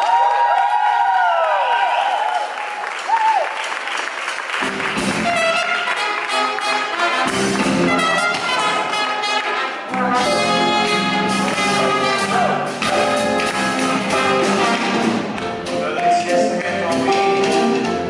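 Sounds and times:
applause: 0.0s - 7.8s
live band playing: 4.6s - 18.0s
trumpet and trombone melody: 5.0s - 15.4s.

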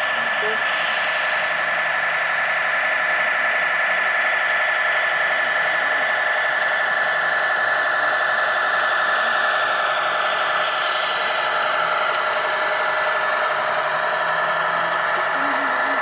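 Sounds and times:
electric motor whining: 5.6s - 16.0s.

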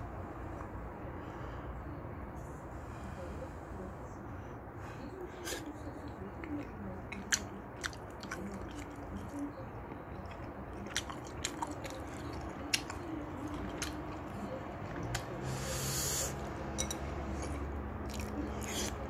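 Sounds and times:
faint background noise: 0.0s - 19.0s
wet chewing smacks: 5.4s - 15.4s, 17.4s - 19.0s.

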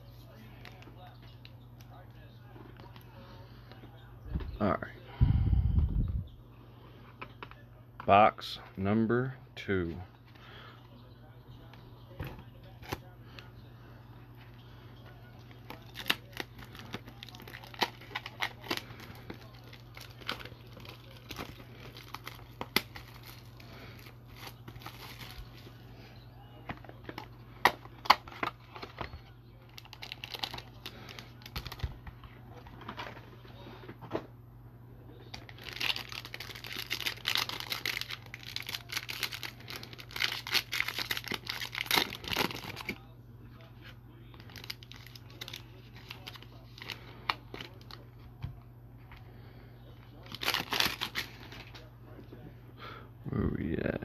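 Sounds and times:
low steady hum: 0.0s - 54.0s
foil pack crinkling: 15.2s - 25.8s, 26.6s - 33.4s, 35.2s - 43.1s, 44.3s - 48.2s, 50.0s - 51.9s
cardboard and plastic rustling: 15.4s - 25.8s, 26.6s - 34.3s, 35.2s - 43.0s, 43.8s - 49.2s.

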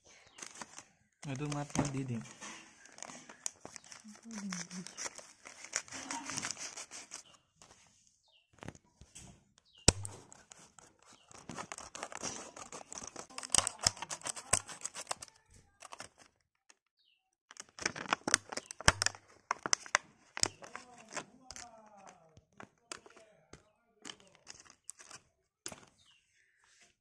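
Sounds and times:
plastic packaging crinkling: 0.1s - 7.3s, 9.9s - 16.5s, 17.5s - 23.2s, 24.0s - 25.9s
plastic snapping: 9.8s - 16.4s, 17.5s - 25.9s.

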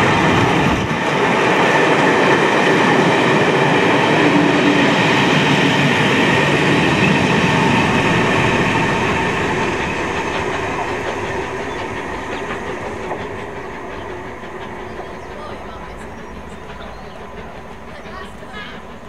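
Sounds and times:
train wheels on rails: 0.0s - 19.0s.

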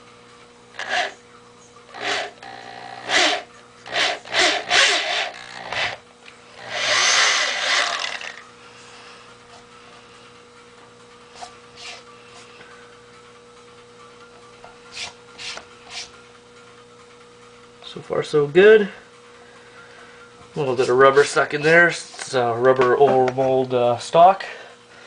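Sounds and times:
electric drill boring: 0.7s - 1.2s, 1.9s - 8.5s.

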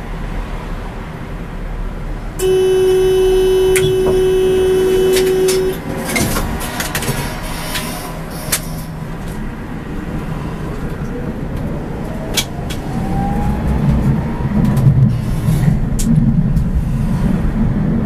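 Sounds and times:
vehicle rumble: 0.0s - 18.0s
horn-like warning tone: 2.4s - 5.9s.

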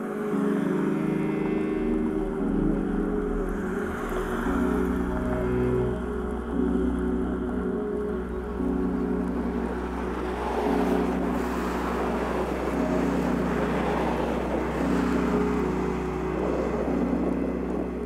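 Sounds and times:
ambient music with sustained chords: 0.0s - 18.0s
car passing on road: 8.6s - 18.0s.

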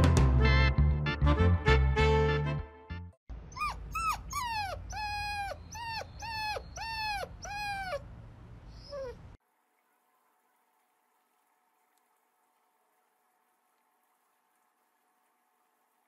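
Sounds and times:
puppy whining: 3.5s - 8.1s, 8.7s - 9.4s.

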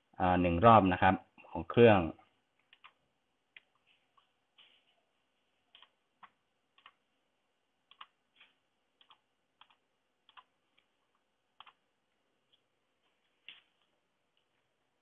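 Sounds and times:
computer mouse clicks: 2.6s - 3.8s, 5.7s - 7.0s, 7.9s - 11.8s.

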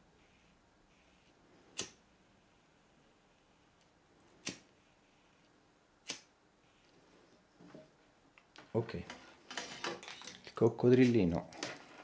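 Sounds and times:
faint room hush: 0.0s - 11.8s
lighter clicks: 6.0s - 6.3s.

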